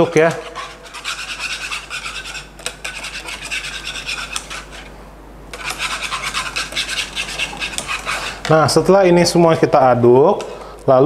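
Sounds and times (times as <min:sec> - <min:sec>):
whisk scraping saucepan: 0:00.0 - 0:04.9, 0:05.5 - 0:08.8.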